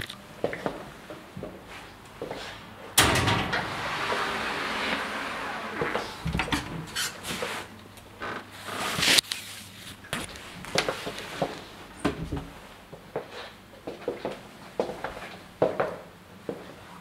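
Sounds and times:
loud clunk: 0:03.0 - 0:07.0.

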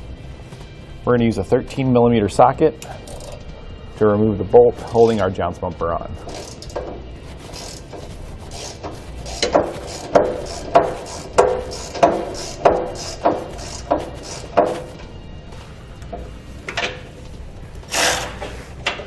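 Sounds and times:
hand ratchet clicking: 0:02.8 - 0:03.4, 0:06.2 - 0:14.9, 0:17.9 - 0:19.0.

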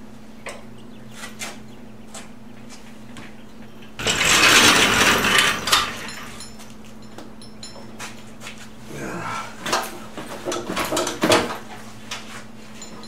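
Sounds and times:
metal lift scraping on concrete: 0:04.0 - 0:06.6.

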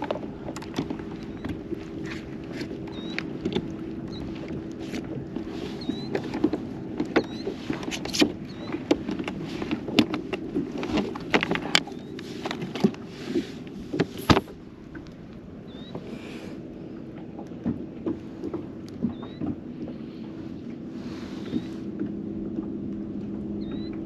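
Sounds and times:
knocks and clacks from hull: 0:00.0 - 0:15.0, 0:17.1 - 0:20.2
boat motor hum: 0:00.0 - 0:24.0.

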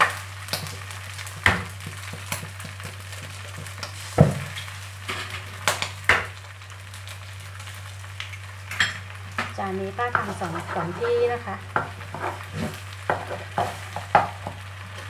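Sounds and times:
food sizzling in a wok: 0:00.0 - 0:15.0
sharp knocks on a pan: 0:01.4 - 0:04.5, 0:06.1 - 0:06.3, 0:13.1 - 0:14.6.

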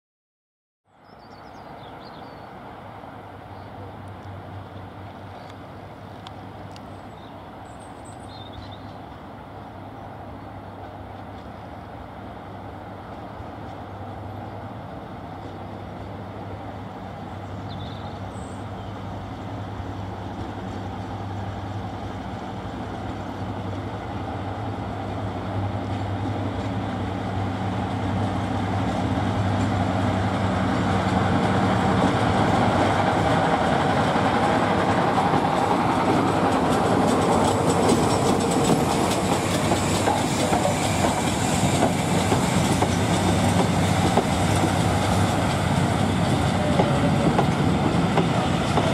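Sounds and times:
diesel locomotive engine drone: 0:00.9 - 0:48.9
wheels clattering over rails: 0:33.6 - 0:48.9.

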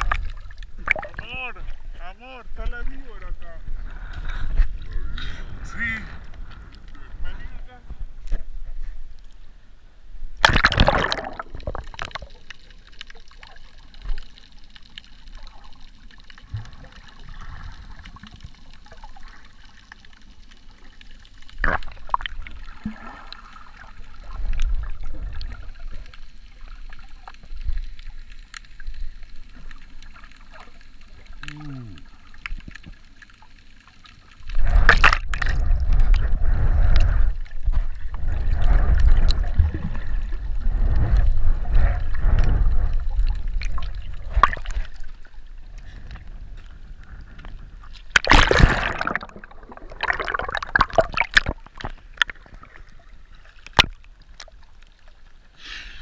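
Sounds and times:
splash into water: 0:00.0 - 0:01.3, 0:10.4 - 0:12.4, 0:34.6 - 0:36.2, 0:43.6 - 0:45.0, 0:48.1 - 0:51.9
underwater clicks: 0:00.0 - 0:01.4, 0:10.4 - 0:17.3, 0:34.4 - 0:40.0, 0:42.0 - 0:45.1, 0:47.3 - 0:52.8, 0:53.6 - 0:54.9
muffled underwater gurgling: 0:30.5 - 0:32.4
swimmer kicking splashing: 0:48.2 - 0:51.6.

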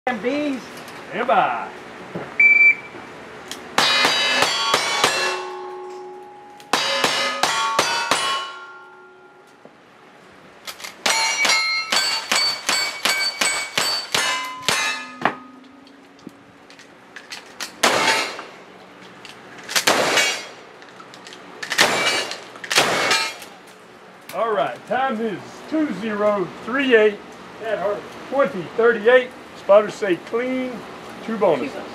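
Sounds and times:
steel target clanging: 0:03.8 - 0:09.5, 0:10.9 - 0:16.0, 0:21.8 - 0:23.5
shotgun blasts: 0:17.8 - 0:18.4, 0:19.8 - 0:20.6, 0:21.8 - 0:23.4
gunshots: 0:17.8 - 0:18.5, 0:19.8 - 0:20.5, 0:21.8 - 0:23.4.

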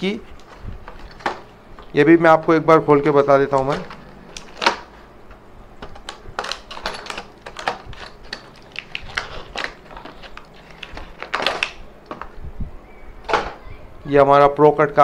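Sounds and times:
plastic packaging crackling: 0:00.0 - 0:02.0, 0:03.4 - 0:05.0, 0:05.8 - 0:12.3.

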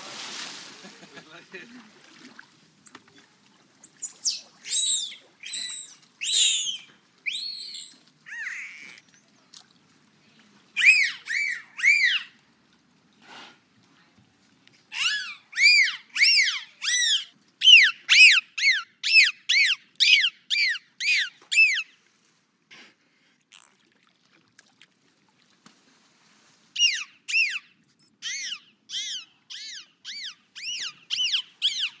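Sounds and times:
dolphin whistling: 0:03.9 - 0:09.0, 0:10.8 - 0:12.3, 0:15.0 - 0:21.9, 0:26.8 - 0:32.0.

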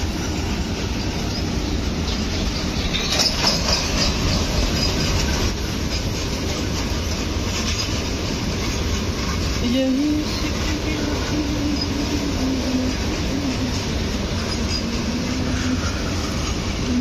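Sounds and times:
metallic clatter and squeal: 0:00.0 - 0:17.0
train wheels rumbling on rails: 0:00.0 - 0:17.0.

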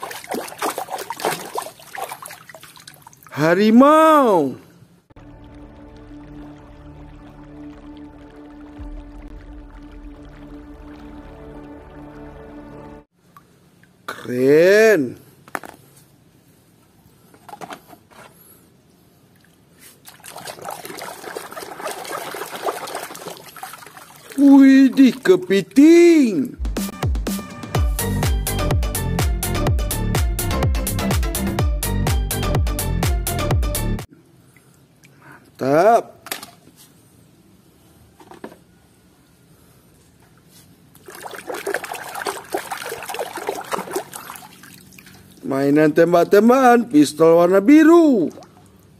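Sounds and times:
water splashing in a plastic tub: 0:00.0 - 0:03.4, 0:05.2 - 0:12.4, 0:19.3 - 0:25.7, 0:40.9 - 0:46.9, 0:47.9 - 0:48.9.

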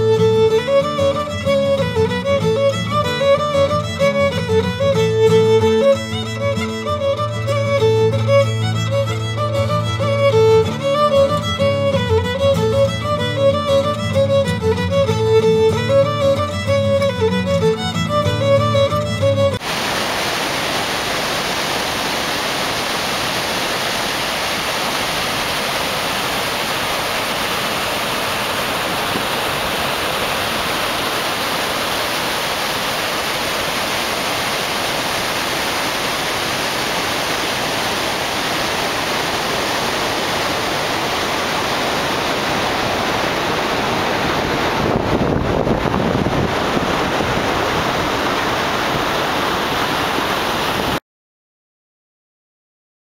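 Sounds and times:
waterfall rushing: 0:00.0 - 0:51.0.

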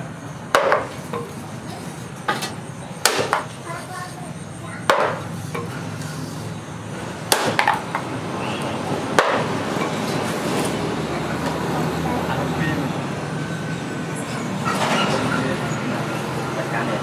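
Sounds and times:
hammer knocking on blade: 0:04.9 - 0:05.7.

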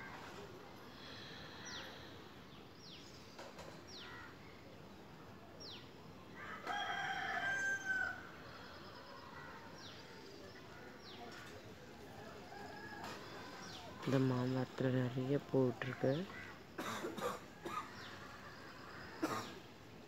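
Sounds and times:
rooster crowing: 0:06.4 - 0:08.4.

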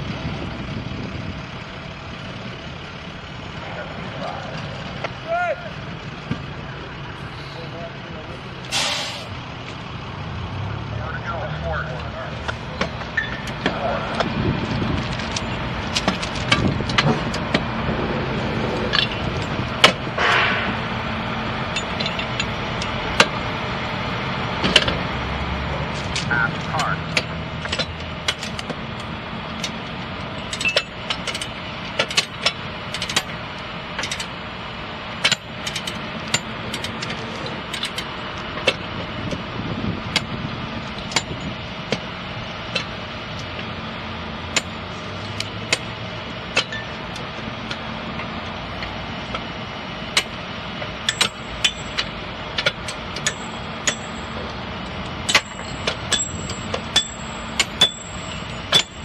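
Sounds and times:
engine idling: 0:00.0 - 0:59.0
spike mauls clanking on steel: 0:18.3 - 0:23.5, 0:26.0 - 0:34.4, 0:35.2 - 0:39.4, 0:40.0 - 0:43.7, 0:44.4 - 0:59.0.

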